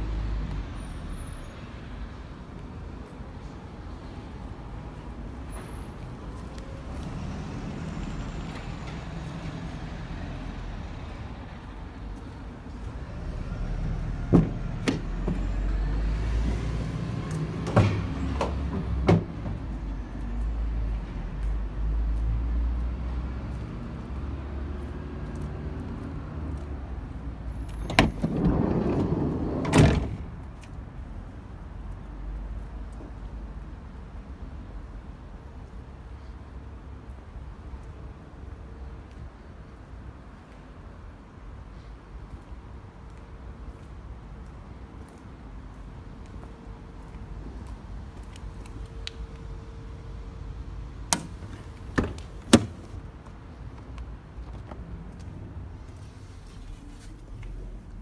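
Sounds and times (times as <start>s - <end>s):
sliding door running on track: 28.0s - 30.2s.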